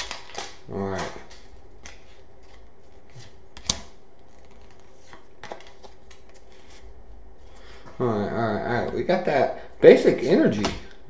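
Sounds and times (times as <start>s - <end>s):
cards and packs rustling: 0.0s - 7.9s.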